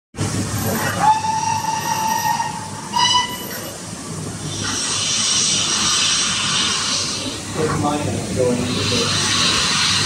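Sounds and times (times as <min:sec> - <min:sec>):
steam hiss: 0:00.2 - 0:10.0
steam whistle blasts: 0:01.0 - 0:03.8.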